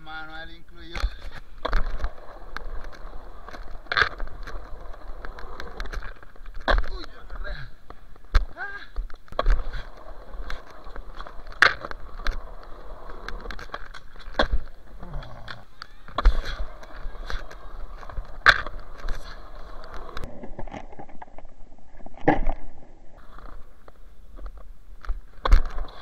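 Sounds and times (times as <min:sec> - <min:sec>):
skateboard wheels rolling on concrete: 0:00.0 - 0:26.0
skateboard clacks: 0:00.8 - 0:20.3.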